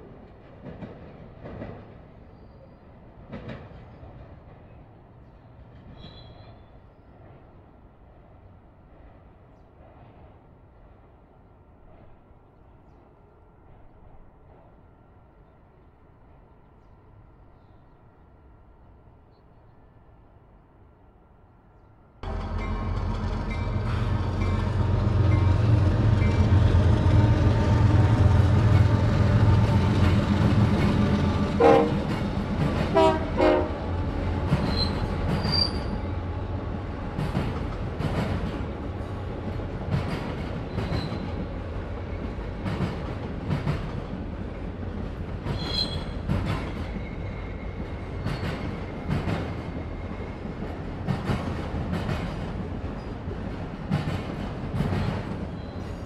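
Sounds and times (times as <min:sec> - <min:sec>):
clacking train wheels: 0:00.0 - 0:02.2, 0:22.2 - 0:56.0
locomotive engine rumble: 0:22.2 - 0:42.4
train horn blasts: 0:31.2 - 0:32.2, 0:32.9 - 0:34.0
high wheel squeals: 0:34.6 - 0:36.0, 0:45.6 - 0:46.2.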